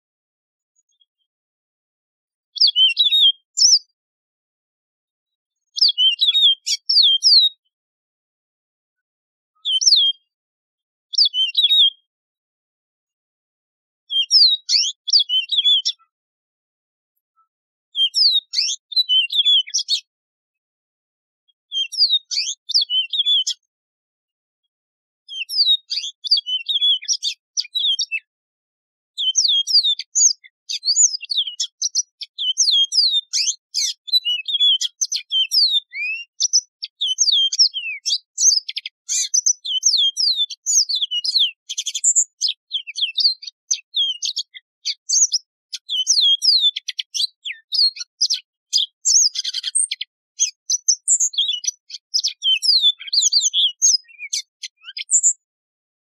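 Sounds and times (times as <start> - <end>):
canary singing: 2.6 - 3.9, 5.7 - 7.6, 9.6 - 10.4, 11.1 - 12.1, 14.1 - 16.1, 18.0 - 20.1, 21.7 - 23.7, 25.3 - 28.3, 29.2 - 55.4.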